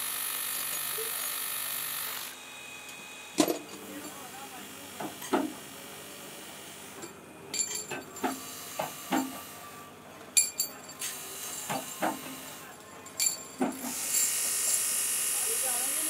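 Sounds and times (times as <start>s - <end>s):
metallic knocks and clinks: 7.5s - 8.4s, 10.4s - 11.0s, 13.0s - 13.7s.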